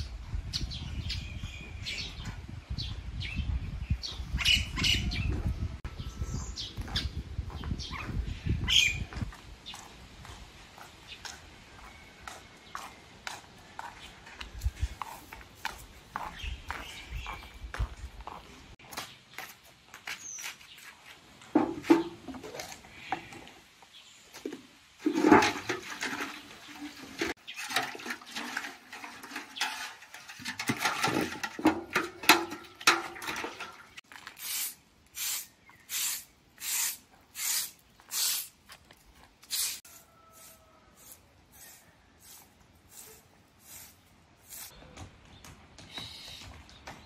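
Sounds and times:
water sloshing in a metal bucket: 25.0 - 34.0
hand broom sweeping concrete: 34.2 - 38.8, 39.4 - 44.8.

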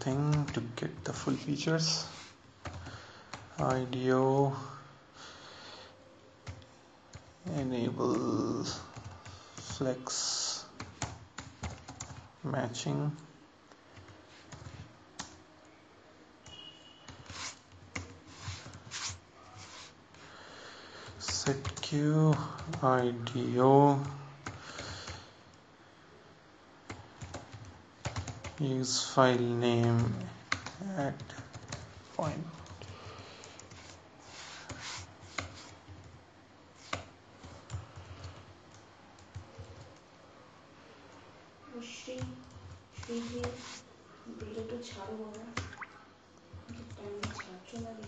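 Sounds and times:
computer keyboard keystrokes: 10.8 - 12.3, 14.0 - 15.4, 26.9 - 28.6, 29.8 - 34.0, 46.6 - 48.0.

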